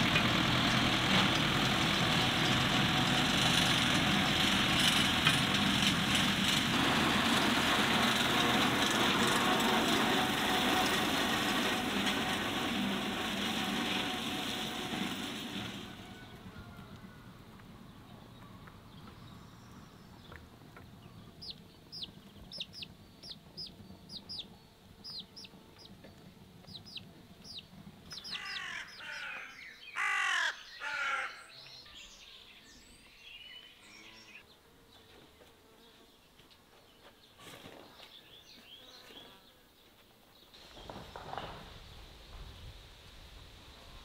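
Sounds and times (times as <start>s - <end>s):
chick peeping: 20.3s - 29.2s
chicken calls: 20.3s - 31.5s
faint bird calls: 26.6s - 32.0s.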